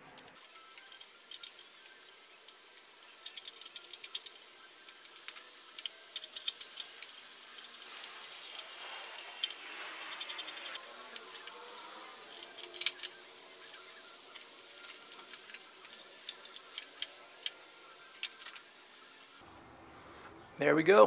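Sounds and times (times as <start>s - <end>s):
ratchet wrench clicking: 0.7s - 1.8s, 2.7s - 11.6s, 12.2s - 18.6s.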